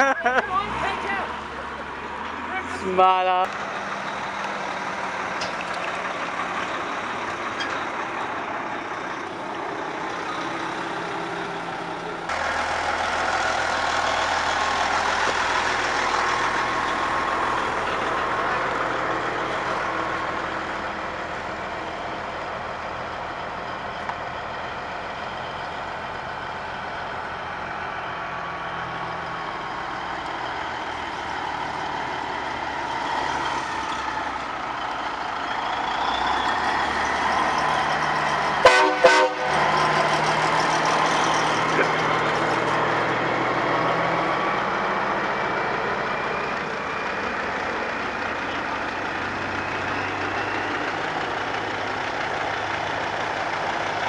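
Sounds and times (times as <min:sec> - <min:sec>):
diesel trucks driving past: 0:00.0 - 0:54.0
truck horn toots: 0:38.6 - 0:39.7.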